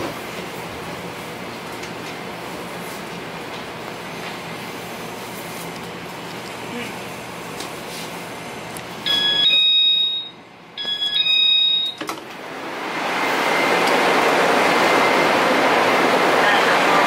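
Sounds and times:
electronic chime beeping: 9.1s - 12.0s.

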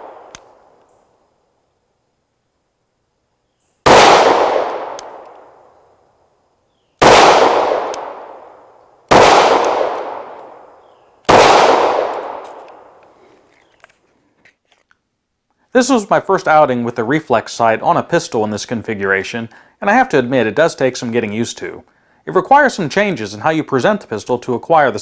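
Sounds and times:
pistol shots ringing out: 3.8s - 5.6s, 7.0s - 13.0s.

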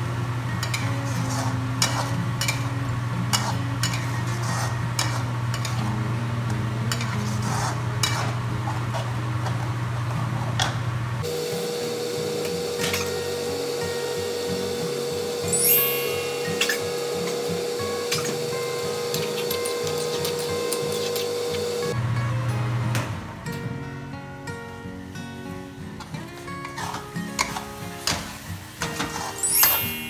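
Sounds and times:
light sizzle of frying: 0.0s - 22.0s, 25.1s - 30.0s
metal spatula scraping a wok: 3.3s - 5.8s, 6.9s - 8.4s.

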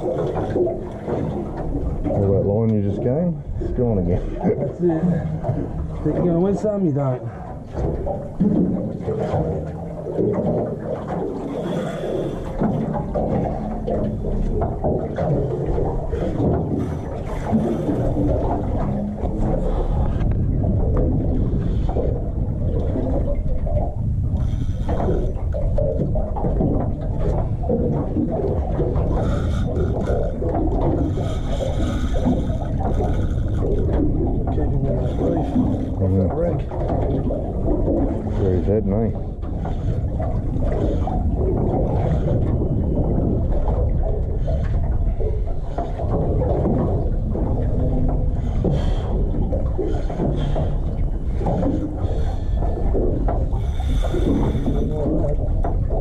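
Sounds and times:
boat noise: 0.0s - 56.0s
sea: 0.0s - 56.0s
wind buffeting microphone: 0.0s - 56.0s.

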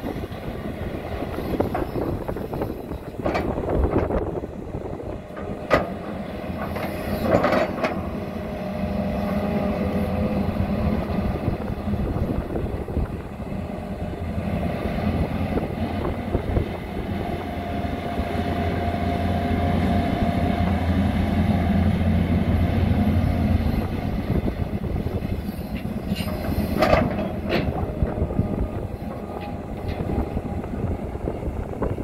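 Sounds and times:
excavator diesel engine under load: 0.0s - 32.0s.

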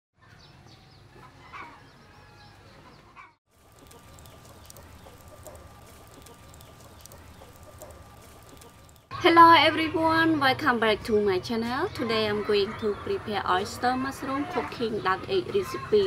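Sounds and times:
small birds chirping: 0.2s - 9.1s
chickens clucking: 2.8s - 9.1s
small clicks: 3.6s - 9.1s.

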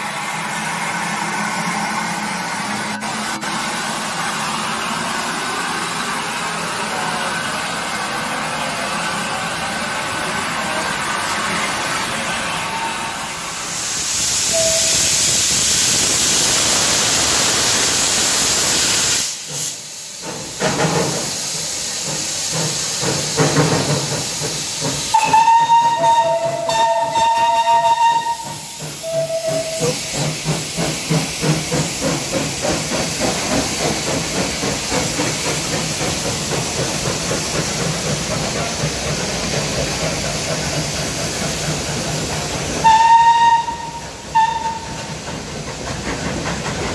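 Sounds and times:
hiss of steam: 0.0s - 46.9s
steam locomotive rhythmic beat: 13.4s - 46.9s
steam whistle blowing: 14.4s - 15.4s, 25.1s - 30.2s, 42.8s - 45.0s.

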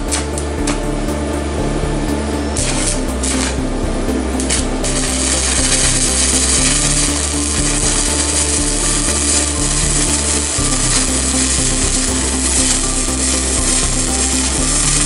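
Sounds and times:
welding arc crackling and hissing: 0.0s - 1.0s, 2.6s - 15.0s.

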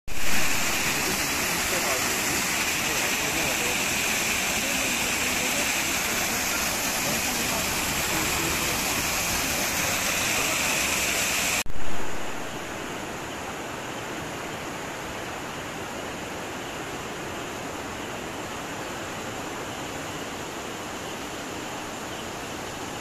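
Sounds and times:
waterfall splashing onto rocks: 0.1s - 12.4s
fast-flowing river rushing: 0.1s - 23.0s.

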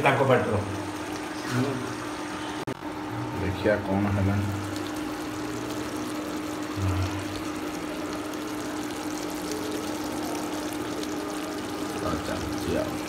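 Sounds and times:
curry sizzling and bubbling: 0.0s - 13.0s
low hum: 4.6s - 12.0s.

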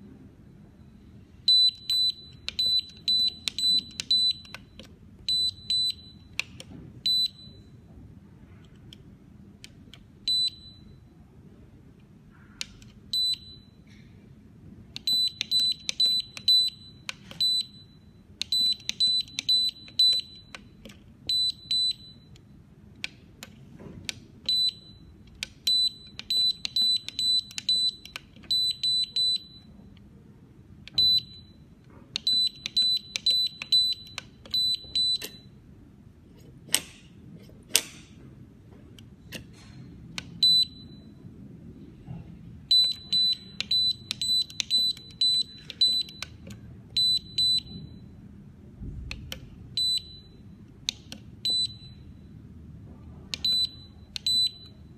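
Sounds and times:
keypad beeps: 0.8s - 7.8s, 9.9s - 11.1s, 12.6s - 14.0s, 14.9s - 22.5s, 24.4s - 30.0s, 30.8s - 35.6s, 40.2s - 41.2s, 42.7s - 48.2s, 49.1s - 52.4s, 53.3s - 54.9s
safe lock clicks: 18.4s - 30.1s, 30.8s - 31.5s, 32.1s - 35.5s, 36.6s - 38.2s, 42.7s - 48.0s.

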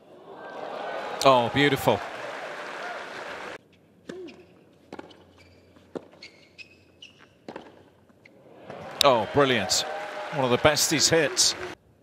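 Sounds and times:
crowd applause: 0.2s - 3.6s, 8.5s - 11.8s
shoe squeaks: 4.1s - 8.4s
racket hitting tennis ball: 7.5s - 7.8s.

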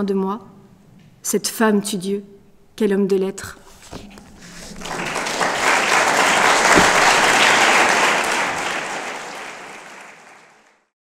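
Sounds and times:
audience applauding: 4.4s - 10.9s.

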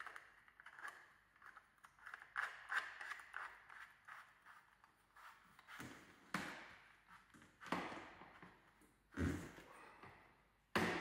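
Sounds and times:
plastic nozzle scraping and clicking: 0.0s - 6.0s.

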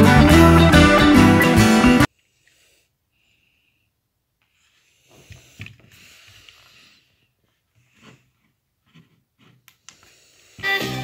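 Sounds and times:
hands rubbing speaker: 7.4s - 9.9s.

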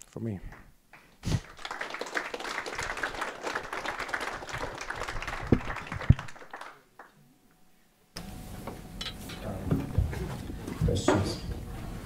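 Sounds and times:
audience applauding: 1.4s - 7.2s.

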